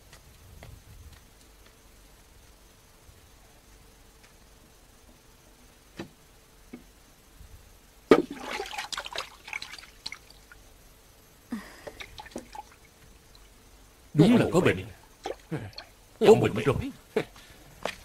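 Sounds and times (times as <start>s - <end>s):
fish splashing into river: 8.1s - 10.3s
dripping water: 8.2s - 10.6s, 11.9s - 13.5s.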